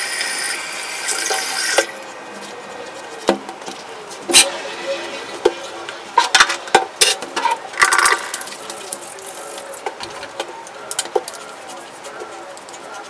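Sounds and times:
small objects clicking and clattering: 7.4s - 9.9s.

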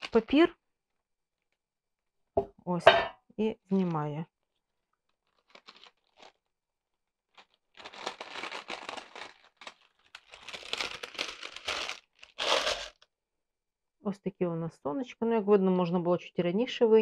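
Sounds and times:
baking parchment crinkling: 4.8s - 13.0s.

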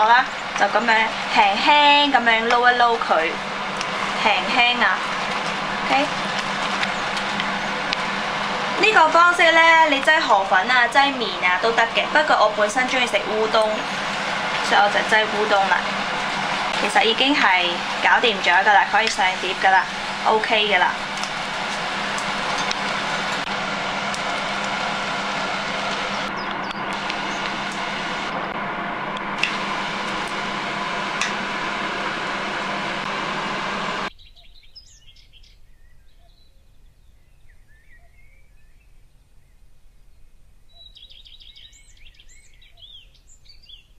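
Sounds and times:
birds chirping: 0.0s - 28.4s
low hum: 0.0s - 34.1s
loud rushing noise: 10.6s - 34.1s.

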